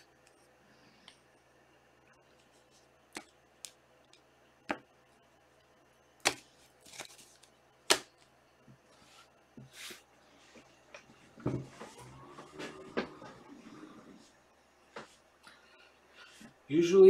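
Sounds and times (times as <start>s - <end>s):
cards sliding on table: 9.0s - 10.7s.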